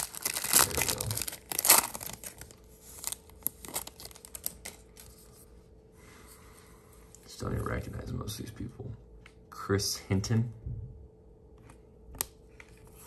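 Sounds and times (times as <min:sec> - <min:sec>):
paper cards rustling: 0:00.0 - 0:05.4.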